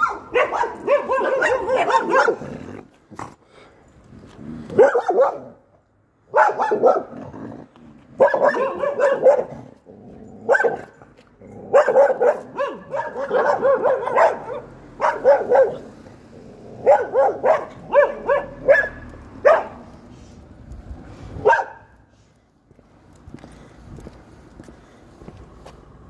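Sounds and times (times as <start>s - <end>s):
dogs barking: 0.0s - 2.5s, 4.7s - 5.6s, 6.3s - 7.2s, 8.2s - 9.7s, 10.4s - 11.0s, 11.6s - 15.9s, 16.8s - 19.9s, 21.4s - 22.0s.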